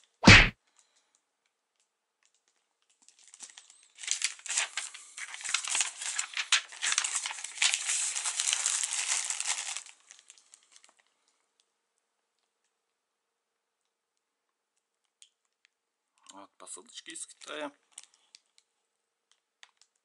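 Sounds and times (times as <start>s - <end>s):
plastic mailer bag crinkling: 3.1s - 10.9s.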